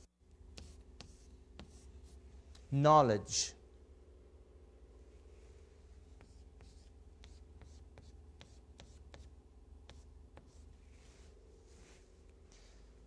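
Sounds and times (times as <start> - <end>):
steady low hum: 0.0 - 13.0
chalk tapping on chalkboard: 0.5 - 2.0, 6.2 - 9.3, 9.9 - 10.6.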